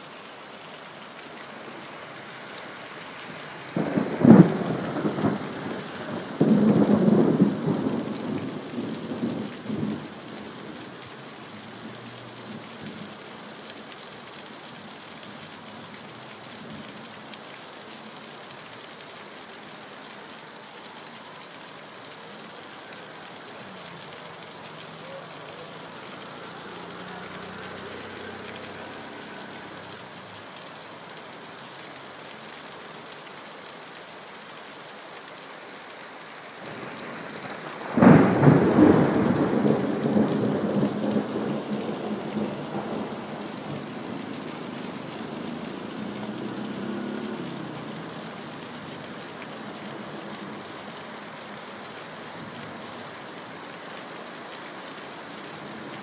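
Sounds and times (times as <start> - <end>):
steady rain falling: 0.0 - 56.0
thunderclap and rumble: 36.7 - 44.1.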